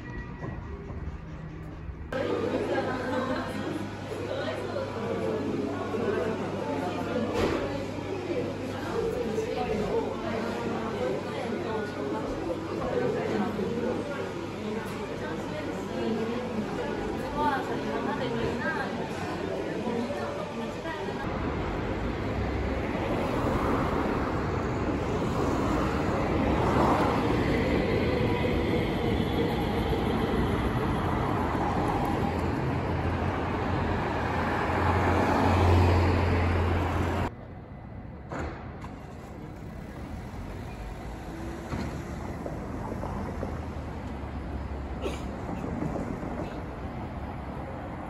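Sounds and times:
train rumbling: 0.0s - 4.0s, 21.2s - 48.0s.

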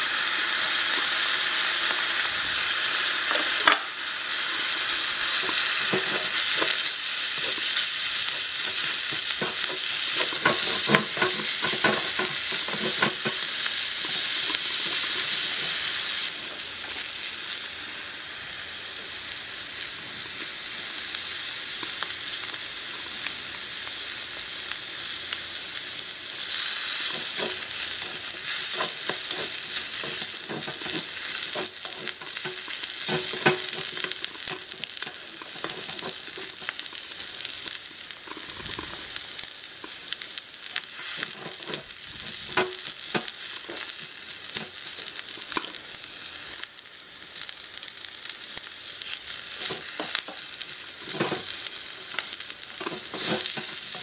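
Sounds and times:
food sizzling in wok: 0.0s - 54.0s
spatula scraping pan: 4.5s - 16.0s, 26.4s - 36.8s, 52.8s - 54.0s.

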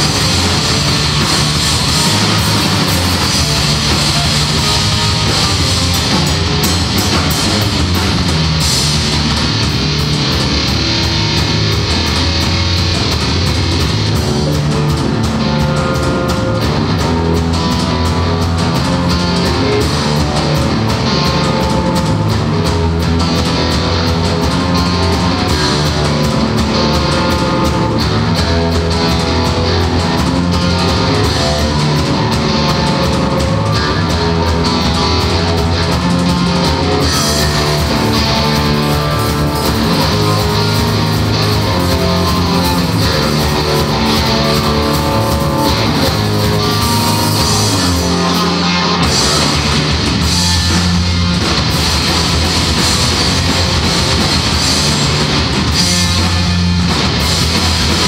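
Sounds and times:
bass guitar: 0.0s - 58.0s
distorted electric guitar: 0.0s - 58.0s
drum kit with cymbals: 0.0s - 58.0s.

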